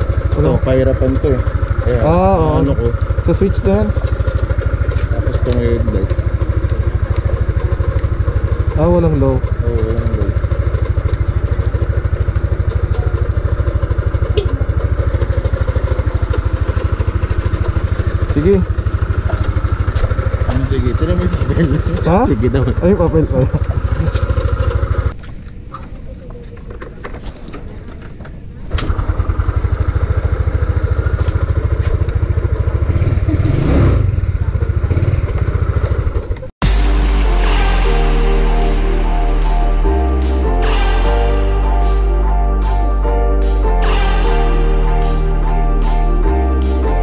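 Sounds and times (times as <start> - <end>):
scooter engine idling: 0.0 - 25.2, 28.8 - 36.8
scooter engine revving: 0.0 - 25.2, 28.7 - 38.1.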